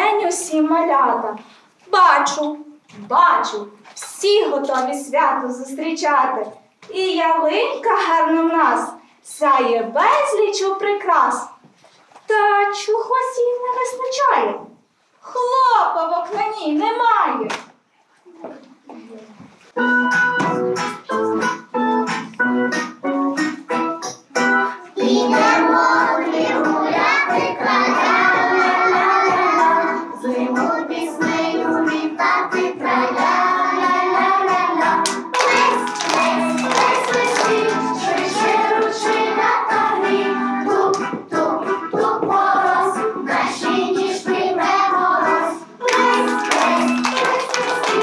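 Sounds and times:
keyboard music: 19.8s - 25.6s
children singing: 25.0s - 48.0s
hands clapping: 35.0s - 39.4s, 40.9s - 41.2s, 45.8s - 48.0s.

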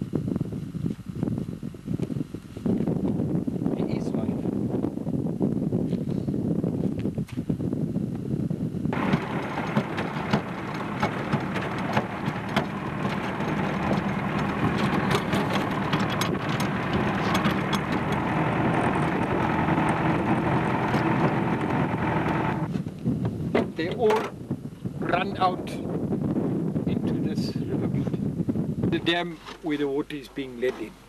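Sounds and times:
vehicle engine and road noise: 8.9s - 31.0s
clicks and rattles: 9.0s - 22.6s.

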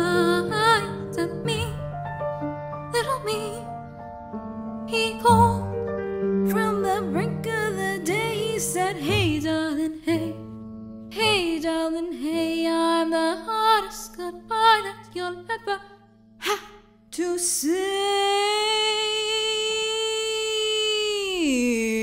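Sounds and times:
woman singing with vibrato: 16.4s - 22.0s.

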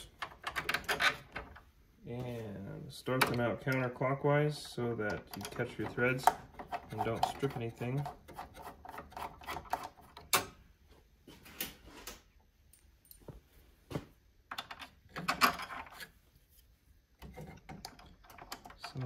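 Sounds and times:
screwdriver clicks and metallic taps: 5.0s - 7.5s.

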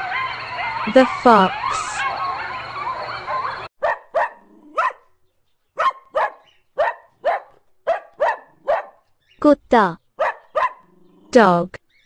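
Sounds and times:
dog barking: 3.3s - 5.1s, 5.8s - 9.1s, 10.2s - 11.2s.

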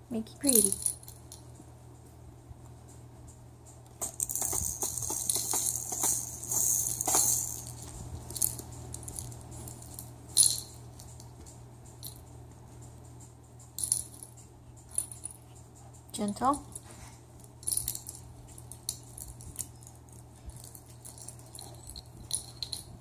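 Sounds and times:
plastic toy rattling: 4.0s - 11.2s, 17.6s - 22.9s.

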